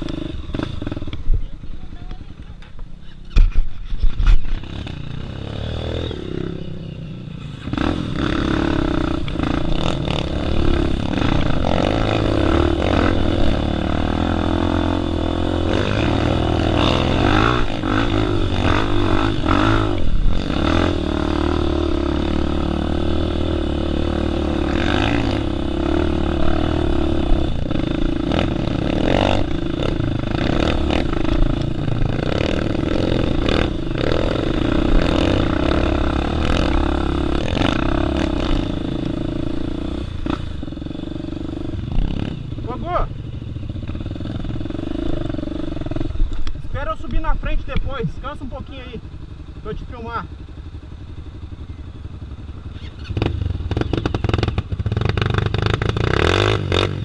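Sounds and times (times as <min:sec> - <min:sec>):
motorbike engine revving: 0:00.0 - 0:57.0.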